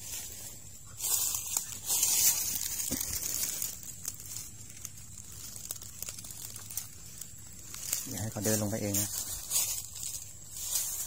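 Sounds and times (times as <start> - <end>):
leaves rustling and crackling: 0.0 - 11.0.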